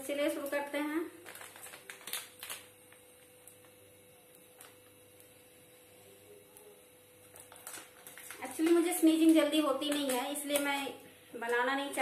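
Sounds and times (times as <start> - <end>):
low steady hum: 0.0 - 12.0
plastic packet crinkling: 0.2 - 3.8, 4.5 - 4.9, 7.2 - 12.0.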